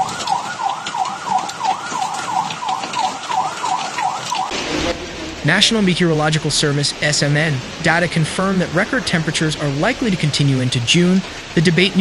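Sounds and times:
emergency vehicle siren yelping: 0.0 - 5.3
heavy rain and hail: 0.0 - 12.0.

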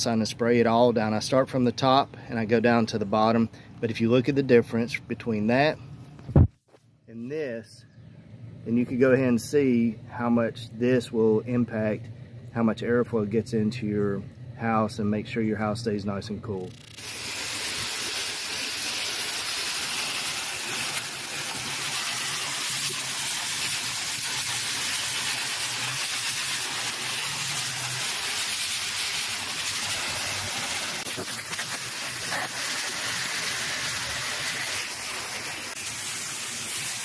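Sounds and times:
hose spraying water on metal fins: 16.8 - 37.0.

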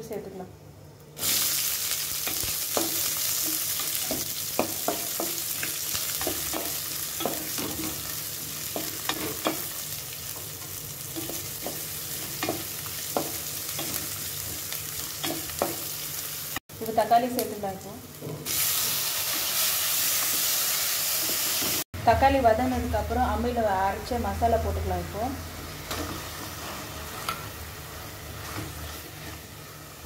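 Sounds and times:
onions sizzling in oil: 1.2 - 21.9, 22.8 - 30.0
spatula scraping and tapping pan: 8.7 - 9.7, 25.9 - 27.5.

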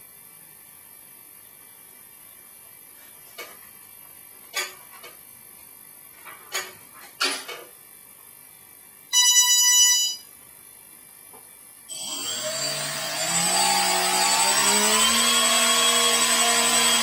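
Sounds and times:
drone motors whining: 11.9 - 17.0.

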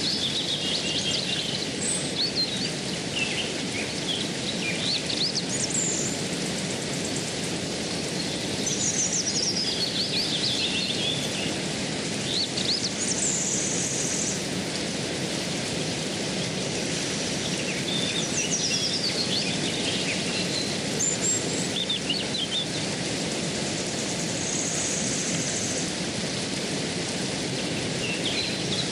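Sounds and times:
birds chirping and trilling: 0.0 - 14.4, 16.2 - 23.0, 27.5 - 28.9
stream flowing: 0.0 - 28.9.

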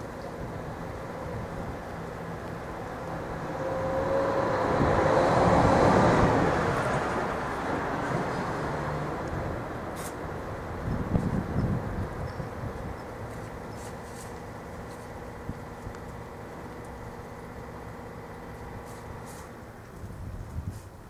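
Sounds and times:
vehicle passing by: 2.6 - 11.6.

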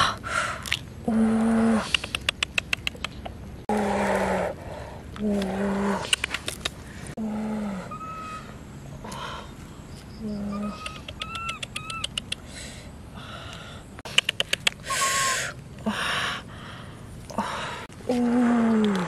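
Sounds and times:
sharp clicks: 1.9 - 3.4, 14.0 - 14.9.

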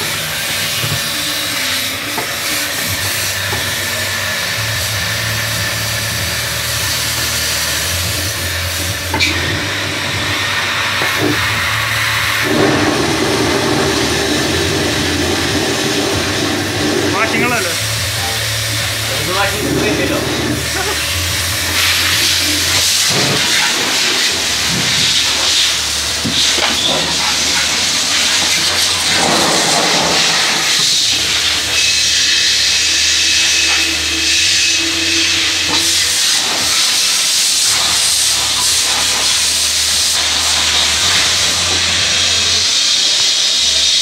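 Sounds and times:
pressure washer spray hissing: 0.0 - 44.0
low hum: 8.0 - 31.8.

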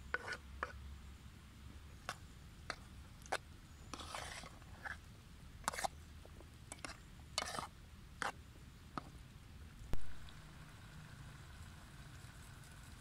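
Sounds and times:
spoon scraping metal pot: 0.1 - 0.8, 3.3 - 5.0, 5.6 - 6.0, 6.7 - 8.4.

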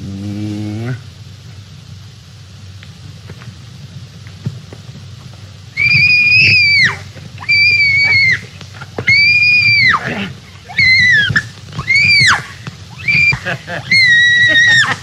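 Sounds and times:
low hiss: 0.0 - 15.0
woman screaming: 5.8 - 15.0.

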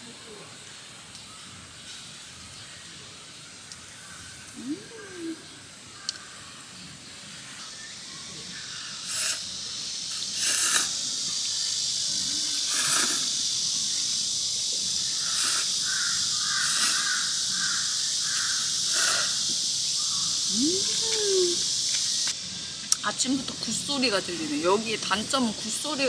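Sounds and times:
cicadas droning: 0.0 - 26.0
crows cawing: 15.2 - 19.4.

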